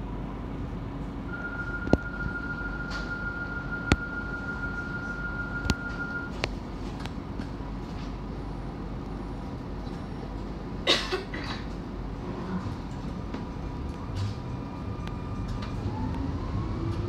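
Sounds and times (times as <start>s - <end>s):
tram low rumble: 0.0s - 17.0s
high door warning tone: 1.3s - 6.4s.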